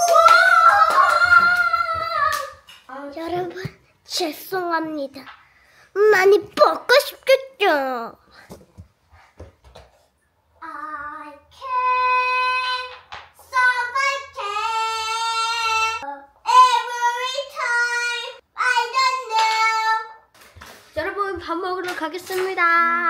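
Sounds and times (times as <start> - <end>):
child singing high notes: 10.6 - 20.2.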